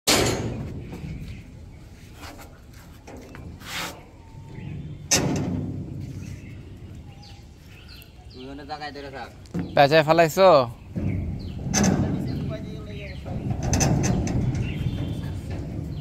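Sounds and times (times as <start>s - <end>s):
rustle: 0.2s - 8.4s
heavy thuds: 9.5s - 16.0s.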